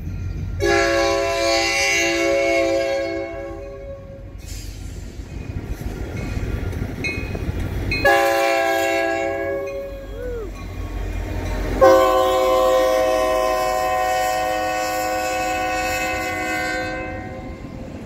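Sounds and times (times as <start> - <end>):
passing train rumble: 0.0 - 18.0
locomotive horn blasts: 0.6 - 4.3, 8.0 - 10.0, 11.7 - 17.8.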